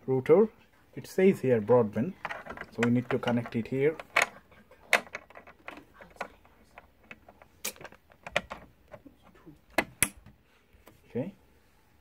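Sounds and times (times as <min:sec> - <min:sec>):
cable plug clicks and knocks: 0:07.0 - 0:09.0, 0:09.7 - 0:10.4.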